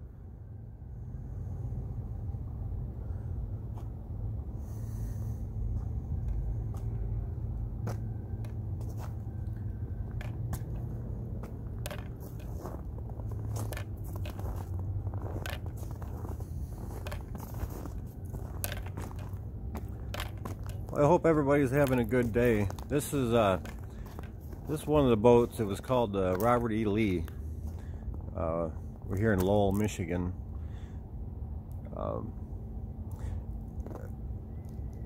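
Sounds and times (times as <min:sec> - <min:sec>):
steady low rumble: 0:00.0 - 0:35.0
footsteps crunching on snow: 0:07.8 - 0:28.4.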